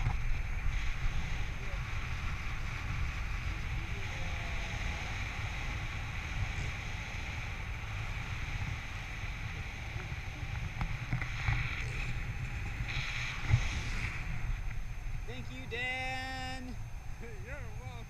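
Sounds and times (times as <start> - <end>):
wind rushing over microphone: 0.0 - 18.0.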